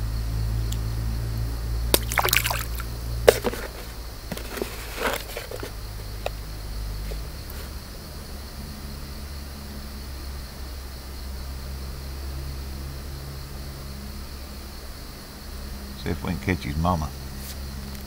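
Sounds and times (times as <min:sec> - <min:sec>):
steady low hum: 0:00.0 - 0:18.0
water splashing and sloshing: 0:01.9 - 0:05.7.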